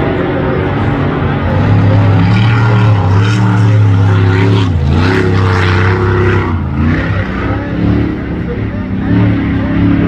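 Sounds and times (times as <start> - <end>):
powerboat engines running hard: 0.0 - 10.0.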